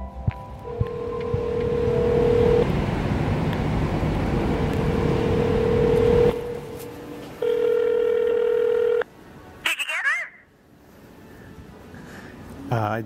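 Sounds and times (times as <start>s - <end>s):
steady background noise: 0.0s - 13.0s
phone ringback tone: 0.6s - 2.7s, 4.8s - 6.6s, 7.4s - 9.1s.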